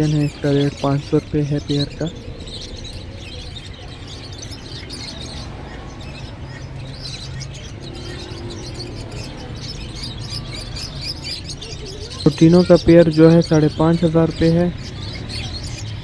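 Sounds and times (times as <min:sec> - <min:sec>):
small birds chirping and twittering: 0:00.0 - 0:16.0.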